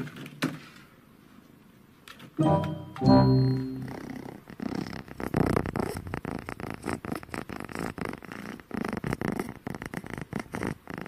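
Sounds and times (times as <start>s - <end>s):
kitten purring: 3.9s - 11.0s.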